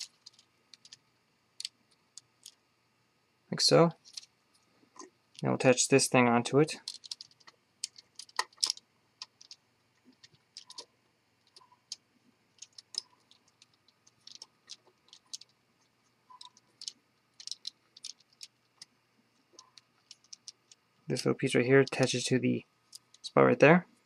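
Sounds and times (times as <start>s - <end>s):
plastic bricks clicking: 0.0s - 1.0s, 1.6s - 2.6s, 6.8s - 15.6s, 16.3s - 18.9s, 19.6s - 20.8s.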